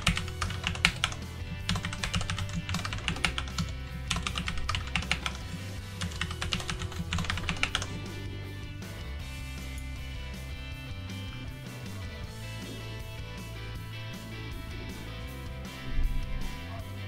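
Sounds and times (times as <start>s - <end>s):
fast keyboard typing: 0.0s - 8.1s
quiet background music: 0.0s - 17.0s.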